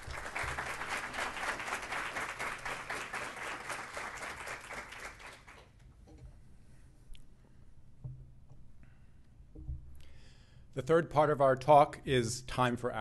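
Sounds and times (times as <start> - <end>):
audience applauding: 0.0 - 5.6.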